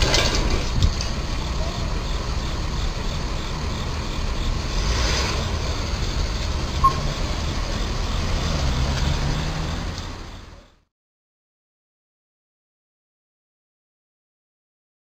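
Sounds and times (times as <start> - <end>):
traffic rumble: 0.0 - 10.9
car driving past: 4.6 - 6.4, 7.0 - 10.6
short beep: 6.7 - 7.3.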